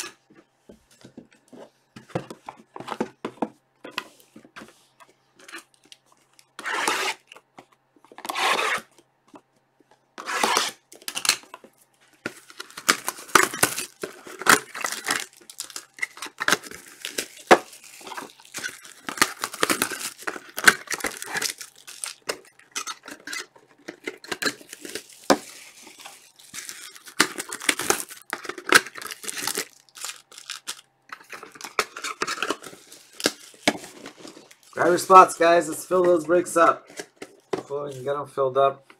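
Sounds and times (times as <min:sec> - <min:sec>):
packs tearing open: 0:10.2 - 0:11.6, 0:12.2 - 0:36.2
wrappers crinkling and rustling: 0:10.5 - 0:38.2.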